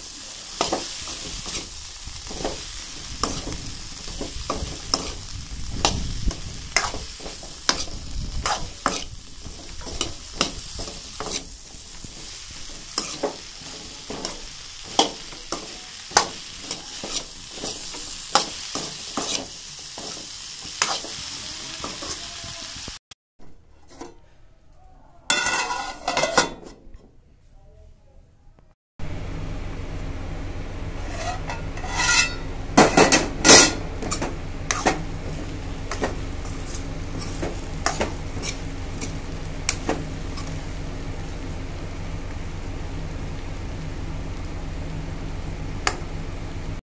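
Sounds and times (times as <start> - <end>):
okra sizzling in oil: 0.0 - 23.0, 30.9 - 46.8
steel spoon scraping a pan: 0.4 - 22.5, 23.5 - 24.3, 25.3 - 26.8, 31.0 - 40.6.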